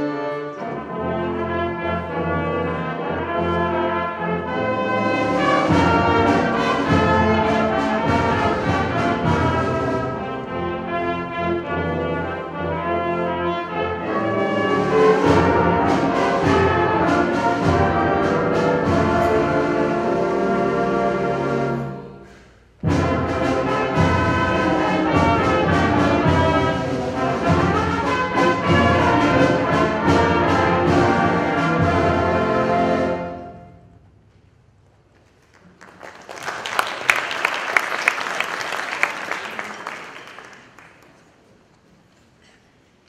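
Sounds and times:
wind band playing: 0.0 - 34.0
audience applauding: 35.2 - 41.6.

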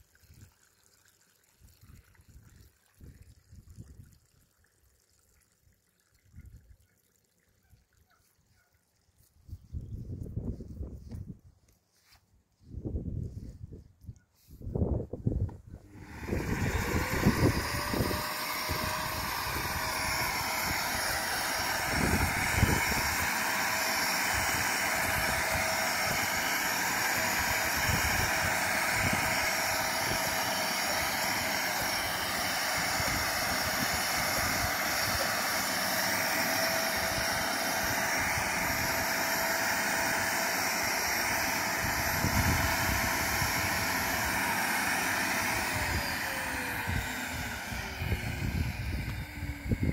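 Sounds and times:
pond vacuum motor whine: 15.7 - 49.9.

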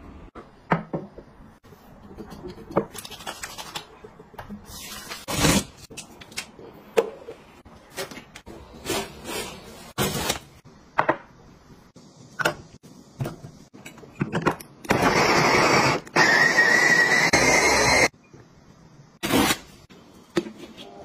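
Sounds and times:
electric food chopper grinding: 15.0 - 18.1.

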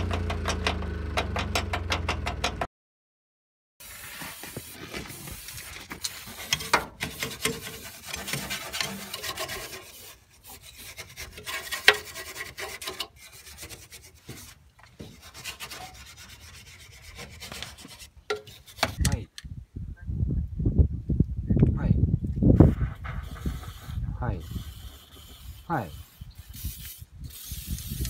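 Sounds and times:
hand tool scraping steel: 3.8 - 19.2, 23.2 - 28.0.

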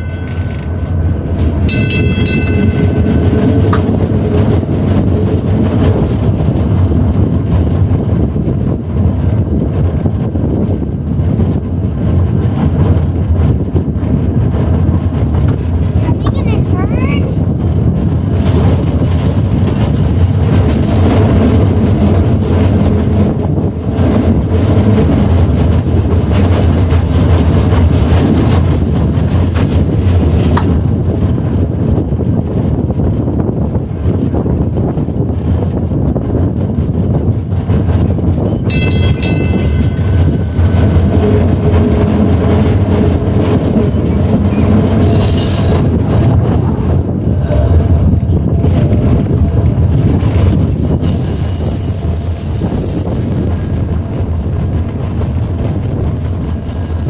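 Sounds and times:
streetcar rumbling: 0.0 - 57.0
wheels clicking on rails: 0.0 - 57.0
wind on microphone: 0.0 - 57.0
short high bell rings: 1.7 - 3.1, 38.7 - 40.0.

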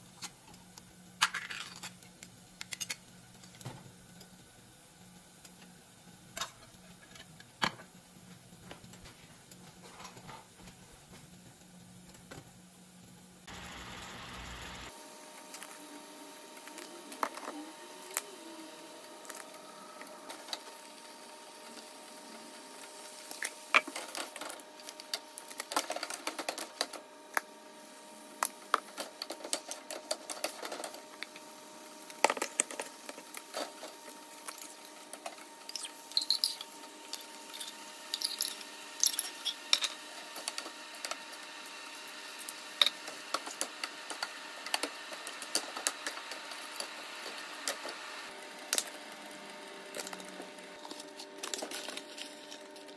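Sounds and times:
faint steady hum: 11.6 - 25.8.

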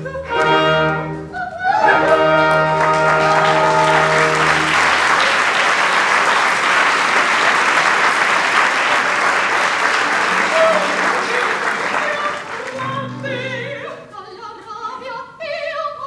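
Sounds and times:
audience applause: 1.8 - 13.2.

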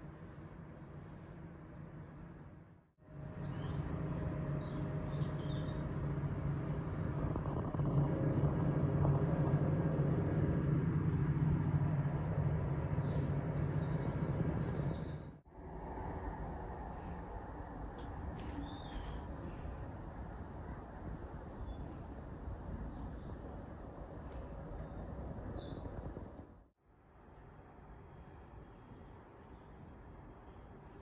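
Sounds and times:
low hum: 0.0 - 26.4
birds chirping faintly: 3.2 - 27.2.

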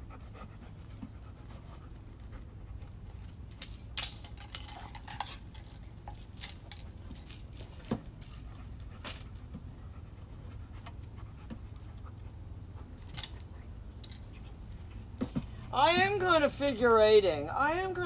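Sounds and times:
light clicks and rustles: 0.8 - 15.6
dog collar jingling: 5.6 - 9.5.

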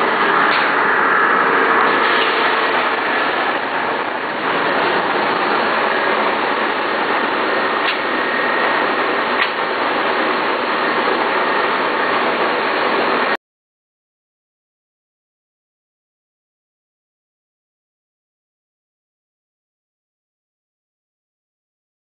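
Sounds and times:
faint steady whine: 0.0 - 13.4
mixer machinery running: 0.0 - 13.4.

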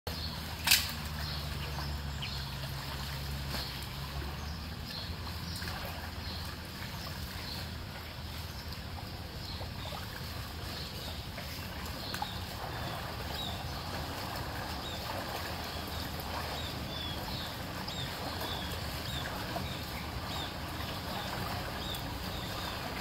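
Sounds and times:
water sloshing and trickling: 0.1 - 23.0
debris clicks and splashes: 0.4 - 1.4.

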